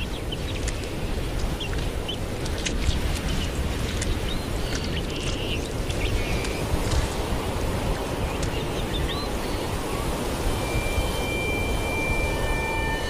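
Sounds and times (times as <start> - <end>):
steady low rumbling: 6.1 - 13.0
high bird chirps: 9.0 - 13.0.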